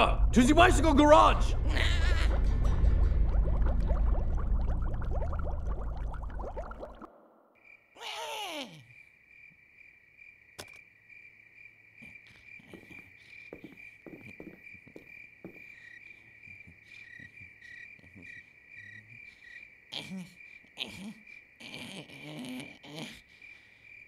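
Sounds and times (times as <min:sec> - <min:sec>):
crickets chirring: 0:07.6 - 0:24.0.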